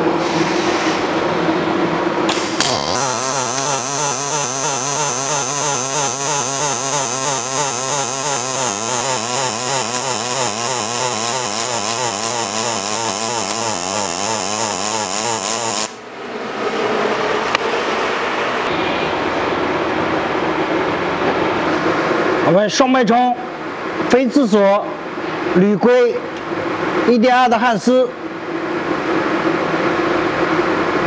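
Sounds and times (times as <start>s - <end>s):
welding arc buzzing: 2.3s - 16.1s.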